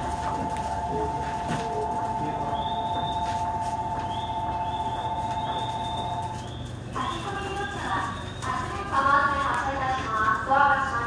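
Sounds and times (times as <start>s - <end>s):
platform departure bell ringing: 0.0s - 6.4s.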